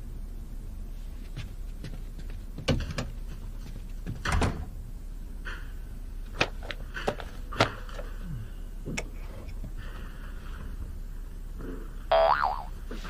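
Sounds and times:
door shutting with a thud: 0:04.1 - 0:04.8.

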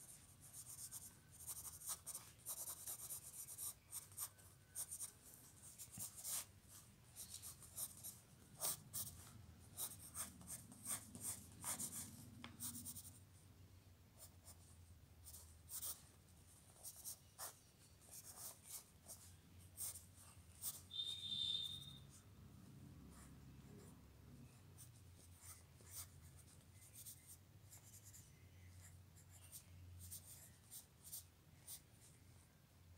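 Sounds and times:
pencil scratching on paper: 0:00.0 - 0:13.2, 0:15.2 - 0:16.0, 0:16.6 - 0:22.0, 0:25.2 - 0:28.2.

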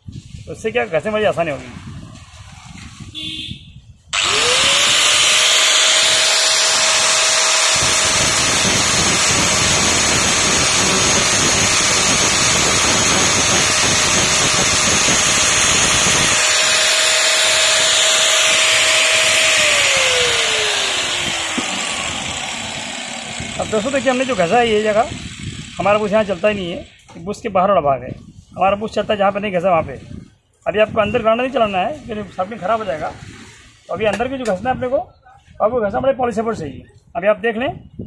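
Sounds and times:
angle grinder grinding steel: 0:04.2 - 0:27.0.

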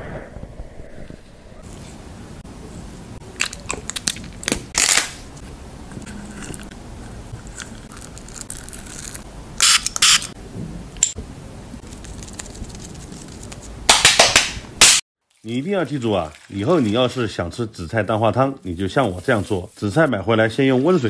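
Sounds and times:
chewing gummy candy: 0:07.3 - 0:09.2.

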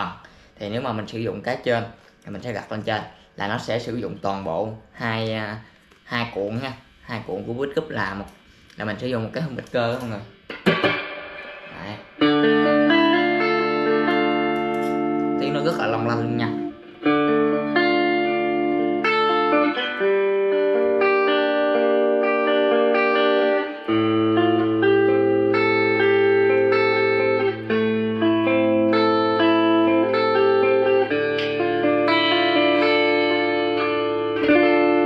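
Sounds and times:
clean electric guitar chords and notes: 0:09.6 - 0:35.0.

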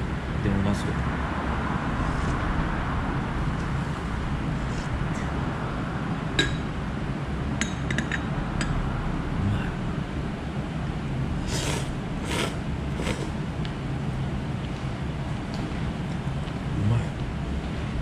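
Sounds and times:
low room hum: 0:00.0 - 0:18.0
tableware clinking on bowl: 0:06.4 - 0:06.7, 0:07.6 - 0:08.7
short hissing sounds: 0:11.4 - 0:13.4.

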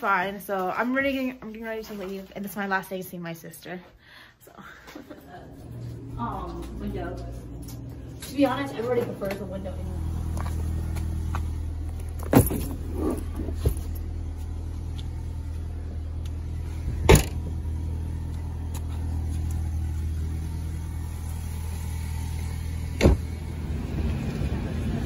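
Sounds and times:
car engine idling: 0:05.1 - 0:25.0
luggage thud: 0:11.9 - 0:14.0.

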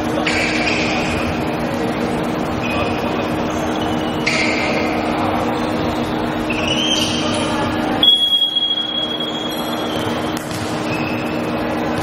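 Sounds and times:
steady hum of sports hall: 0:00.0 - 0:12.0
sneakers squeaking on court: 0:02.6 - 0:05.1, 0:06.4 - 0:12.0
referee's whistle: 0:06.5 - 0:07.4, 0:08.0 - 0:10.3, 0:10.9 - 0:11.4.

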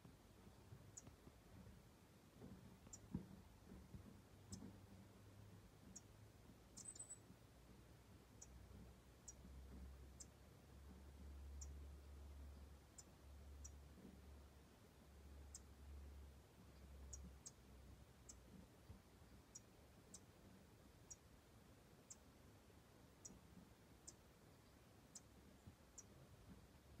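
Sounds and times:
faint low hum: 0:00.0 - 0:27.0
finch tick calls: 0:00.9 - 0:01.2, 0:02.8 - 0:03.1, 0:04.4 - 0:04.8, 0:05.8 - 0:07.4, 0:08.3 - 0:09.5, 0:10.1 - 0:10.4, 0:12.9 - 0:14.2, 0:15.4 - 0:15.8, 0:16.6 - 0:17.6, 0:18.2 - 0:20.3, 0:21.0 - 0:21.3, 0:22.0 - 0:22.2, 0:23.2 - 0:26.6.

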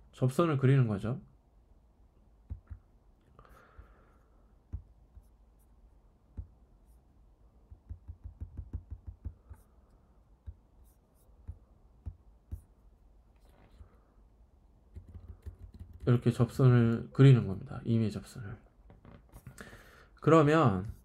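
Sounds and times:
computer mouse clicks: 0:14.9 - 0:16.1.

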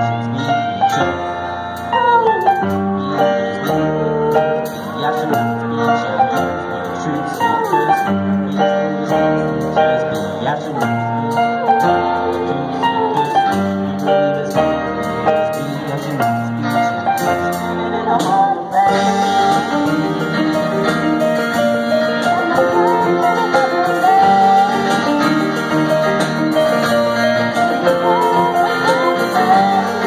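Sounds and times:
live band playing pop song: 0:00.0 - 0:30.0
person singing: 0:00.0 - 0:30.0.

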